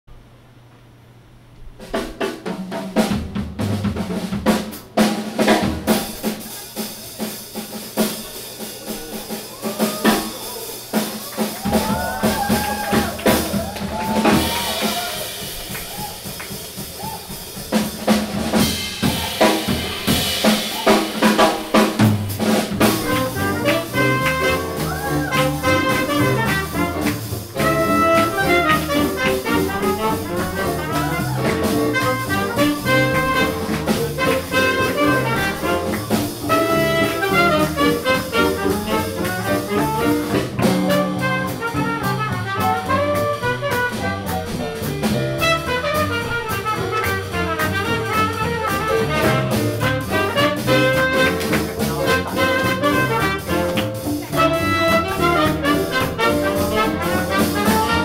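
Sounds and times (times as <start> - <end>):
drum kit with rimshots: 1.7 - 58.0
trumpet: 9.6 - 16.5, 18.3 - 58.0
guitar: 11.6 - 58.0
upright bass: 11.6 - 58.0
saxophone: 22.0 - 58.0.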